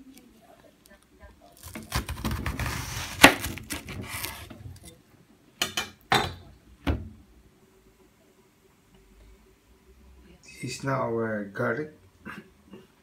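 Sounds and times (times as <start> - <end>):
onion layers snapping: 1.6 - 4.4
knife cutting onion on plastic board: 1.6 - 4.5.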